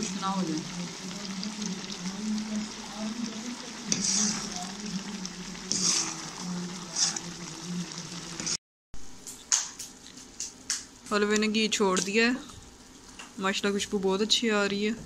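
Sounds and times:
food sizzling in a pot: 0:00.0 - 0:08.6
steady low hum: 0:00.0 - 0:08.6
metal ladle scraping a pot: 0:03.8 - 0:07.6, 0:08.2 - 0:08.6.

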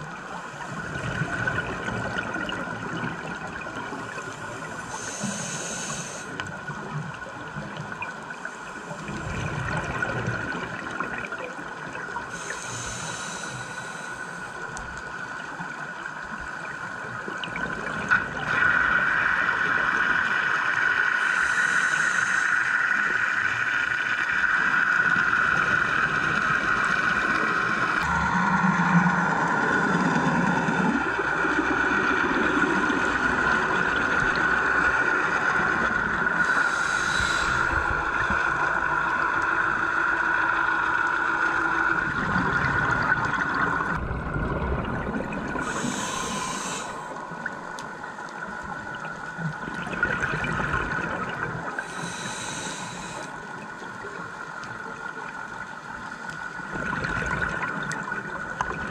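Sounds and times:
steady underwater hum: 0:00.0 - 0:58.9
regulator exhaling bubbles: 0:49.7 - 0:53.3, 0:56.7 - 0:58.9.

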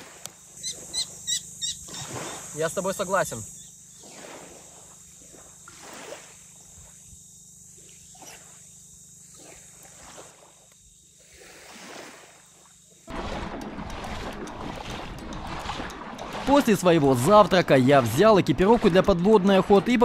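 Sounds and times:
cicadas droning: 0:00.0 - 0:20.0
animal calling: 0:00.6 - 0:02.5.

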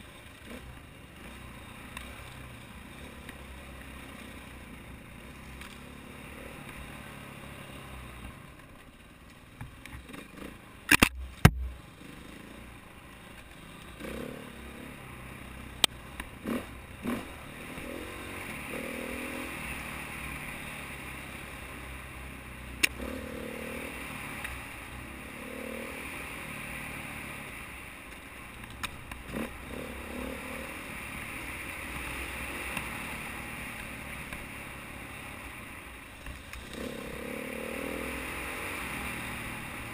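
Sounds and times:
wind and ride noise: 0:00.0 - 0:39.9
dirt bike engine revving: 0:13.6 - 0:15.7, 0:16.4 - 0:21.5, 0:22.9 - 0:27.4, 0:29.3 - 0:35.3, 0:36.6 - 0:39.9.

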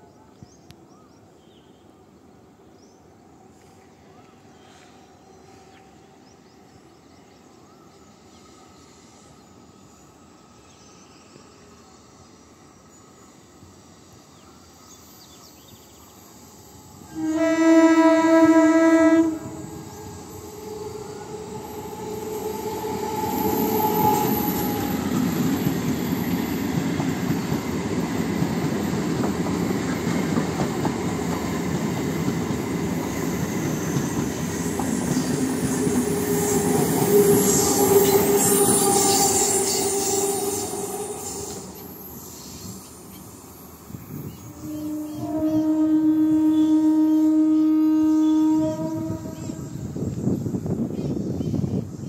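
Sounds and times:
train wheels rumbling on rails: 0:16.8 - 0:46.4
train horn blast: 0:17.0 - 0:24.7, 0:35.2 - 0:41.7, 0:44.4 - 0:50.0.

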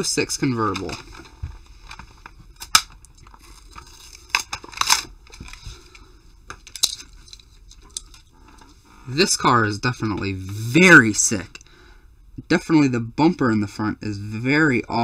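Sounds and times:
plastic packaging crinkling: 0:00.7 - 0:06.0.

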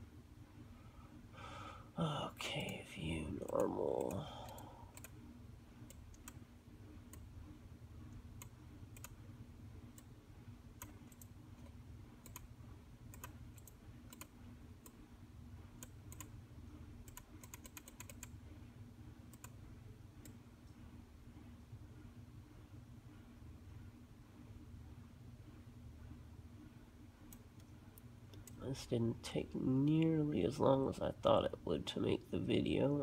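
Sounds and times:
keyboard and mouse clicks: 0:05.8 - 0:06.4, 0:08.4 - 0:09.2, 0:10.8 - 0:12.5, 0:13.1 - 0:15.0, 0:15.8 - 0:16.3, 0:17.0 - 0:18.4.

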